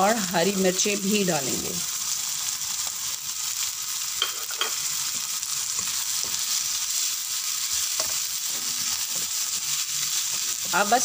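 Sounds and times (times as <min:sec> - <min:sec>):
masala sizzling in hot oil: 0:00.0 - 0:11.0
spatula scraping pan: 0:07.7 - 0:10.9.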